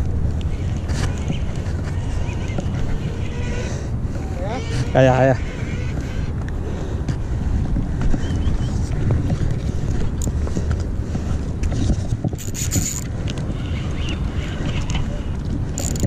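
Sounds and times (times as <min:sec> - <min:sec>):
wind buffeting microphone: 0:00.0 - 0:16.0
fishing reel and line clicks: 0:12.3 - 0:16.0.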